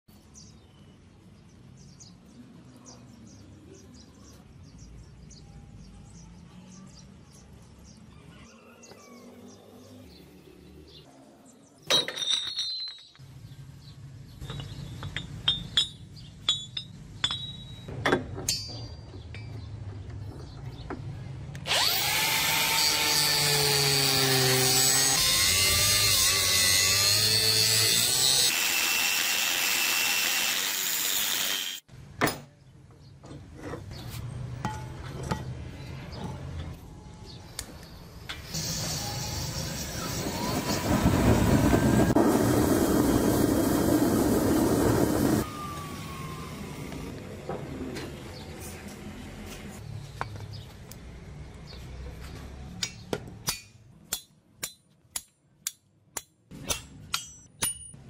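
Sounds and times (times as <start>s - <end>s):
chain clanking on concrete: 11.8s - 13.3s, 14.4s - 19.8s
angle grinder cutting metal: 21.7s - 31.9s, 38.4s - 40.9s.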